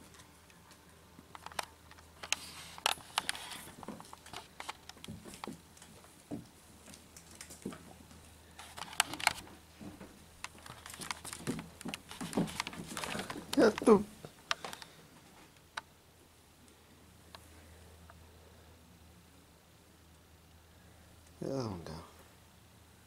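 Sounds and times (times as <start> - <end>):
kittens scuffling on wooden floor: 2.0 - 15.4.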